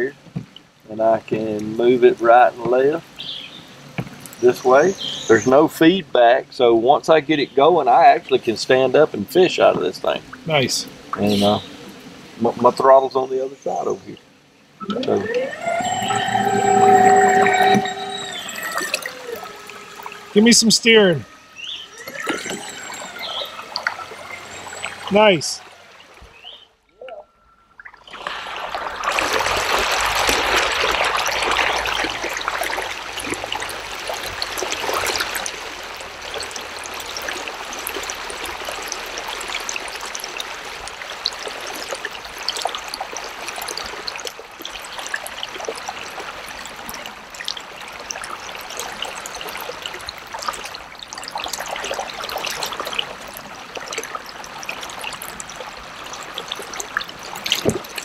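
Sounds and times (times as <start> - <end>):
river water rushing: 14.8 - 26.6.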